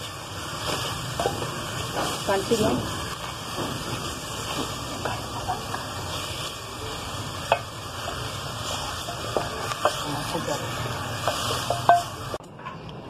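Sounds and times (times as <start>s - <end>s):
vegetables rustling and scraping: 0.0s - 12.4s
steady sizzle: 0.0s - 12.5s
spoon knocking on metal pot: 11.2s - 12.1s.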